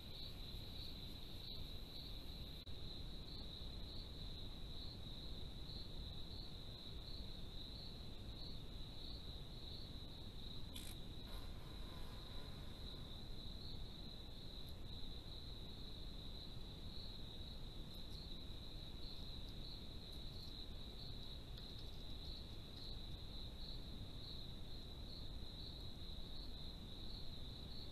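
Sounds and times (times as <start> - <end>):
crickets trilling: 0.0 - 27.9.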